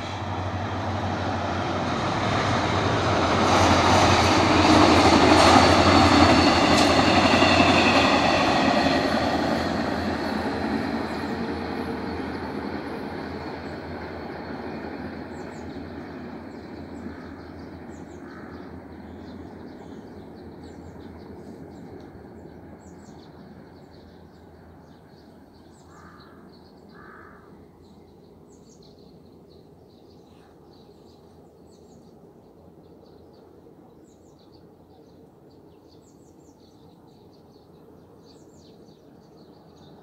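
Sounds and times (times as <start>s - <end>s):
train rumble: 0.0s - 40.0s
crow cawing: 25.9s - 27.5s.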